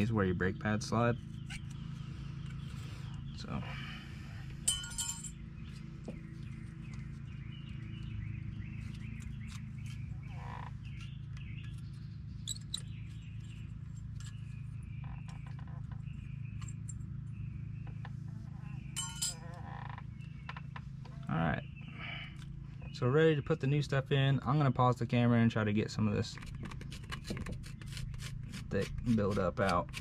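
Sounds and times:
steady low hum: 0.0 - 30.0
metal parts clinking: 4.6 - 5.4, 19.0 - 19.6.

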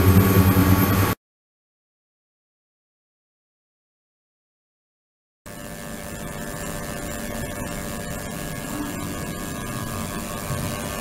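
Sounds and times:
ultrasonic cleaner humming: 0.0 - 1.2, 5.5 - 11.0.

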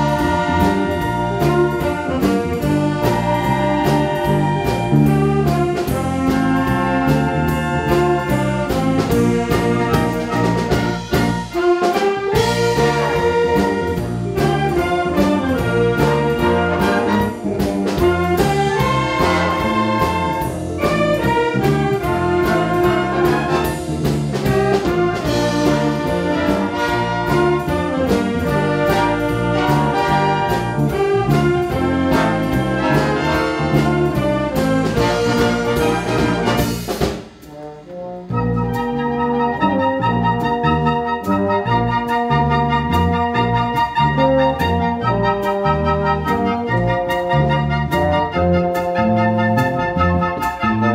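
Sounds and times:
drum kit and cymbal beat: 0.0 - 38.4
trumpets and trombones: 0.0 - 50.9
wind band playing: 0.0 - 50.9.

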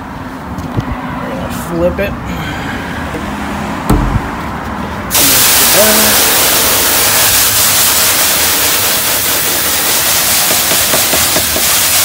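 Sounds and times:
hose spray hissing on mesh: 5.1 - 12.0.

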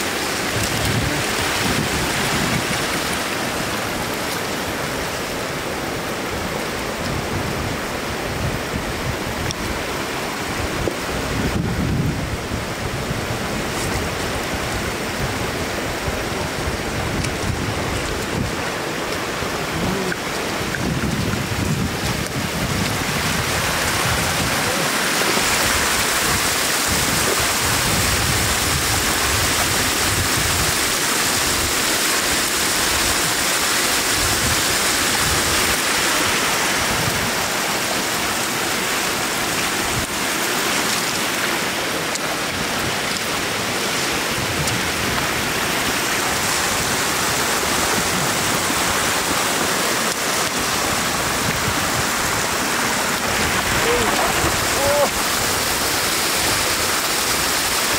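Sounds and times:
floodwater rushing and splashing: 0.0 - 57.9.

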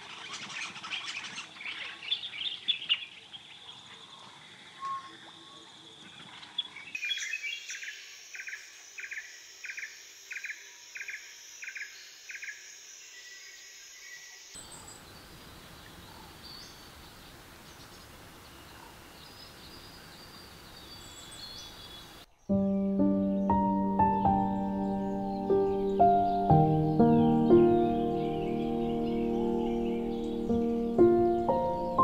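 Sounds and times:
open-air hiss: 0.0 - 32.0
bird chirps: 0.3 - 32.0
high insect drone: 7.0 - 16.3.

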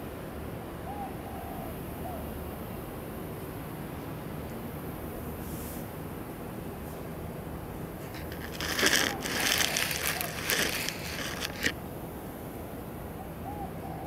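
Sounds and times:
dry crackling rustle: 8.0 - 11.8.

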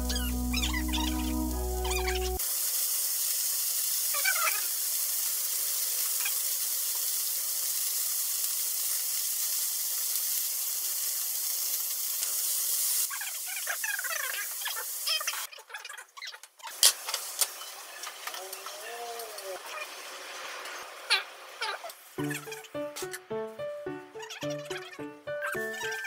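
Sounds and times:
food sizzling in oil in a frying pan: 0.1 - 15.5, 16.7 - 22.8.

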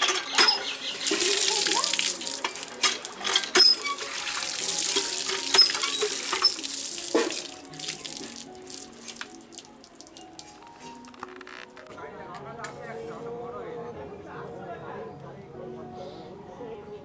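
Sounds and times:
water gushing into colander: 0.0 - 10.5.

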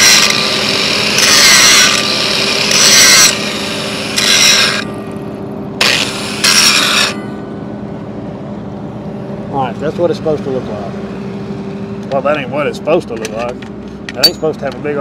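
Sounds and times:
angle grinder grinding steel: 0.0 - 5.2, 5.8 - 7.4
grinder motor hum: 0.0 - 10.1.

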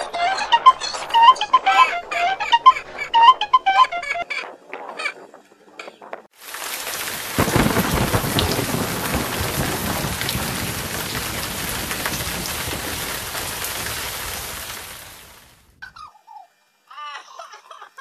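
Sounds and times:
heavy rain: 6.4 - 15.8
loud thunderclap: 6.5 - 15.8.

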